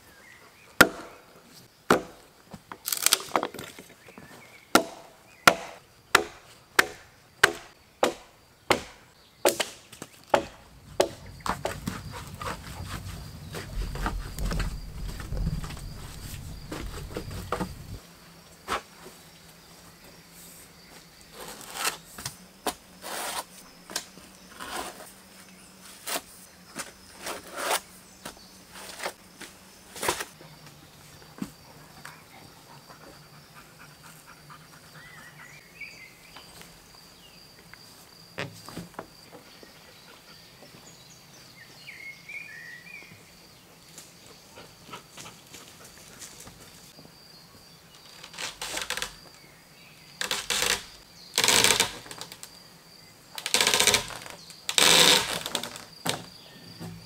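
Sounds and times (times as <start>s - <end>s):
high insect trill: 10.2s - 57.0s.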